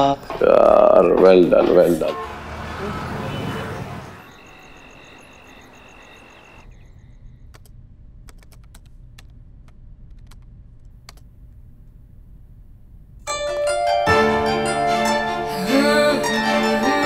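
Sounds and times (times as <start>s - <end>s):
high pulsing chirp: 2.8s - 7.7s
low room hum: 6.6s - 13.3s
laptop keys typing: 7.5s - 11.3s
plucked-string music: 13.3s - 17.0s.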